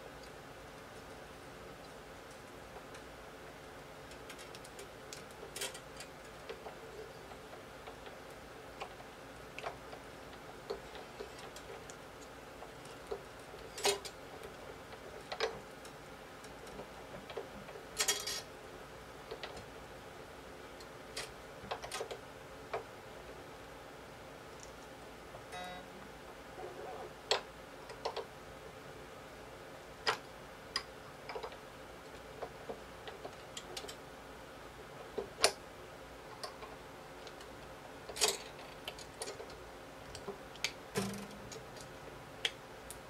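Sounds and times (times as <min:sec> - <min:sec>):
guitar string clicks and ticks: 0:40.1 - 0:43.0
string winder turning tuning key: 0:41.0 - 0:41.9.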